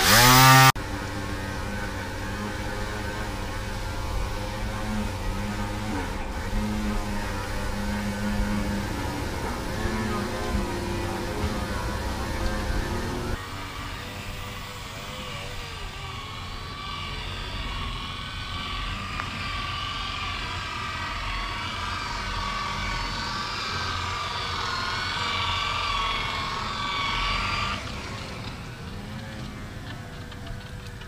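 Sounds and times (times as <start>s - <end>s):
electric polisher motor whine: 0.0s - 31.0s.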